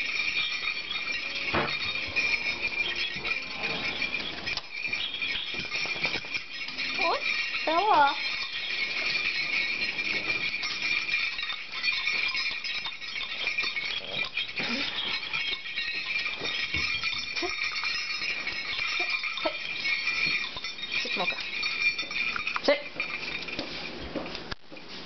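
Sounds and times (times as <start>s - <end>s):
jingle bells on dog collar: 0.0s - 25.0s.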